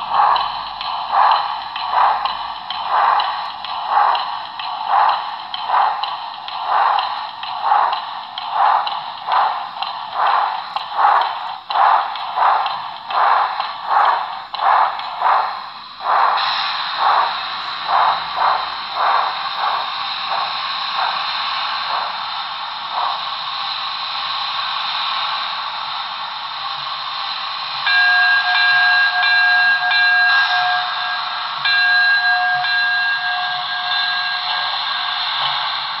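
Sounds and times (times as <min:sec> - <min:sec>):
steady steam hiss: 0:00.0 - 0:36.0
steam locomotive exhaust chuffs: 0:00.0 - 0:36.0
multi-tone steam whistle blasts: 0:27.8 - 0:36.0.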